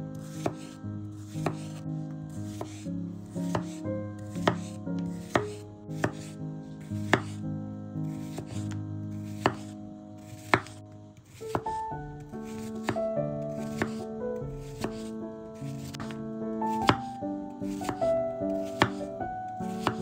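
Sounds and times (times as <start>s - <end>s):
background music: 0.0s - 20.0s
knife chopping on cutting board: 0.2s - 1.8s, 2.5s - 2.8s, 3.4s - 7.4s, 8.1s - 11.8s, 12.4s - 13.0s, 13.6s - 14.0s, 14.6s - 20.0s.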